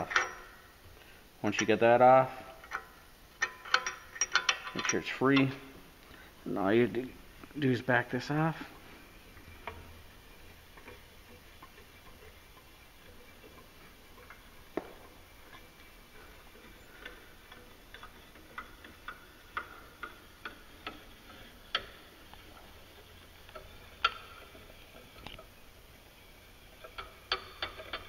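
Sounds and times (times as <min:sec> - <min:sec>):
wrench metallic clicks: 0:00.0 - 0:00.6, 0:02.6 - 0:05.7, 0:15.3 - 0:25.5, 0:26.8 - 0:28.0.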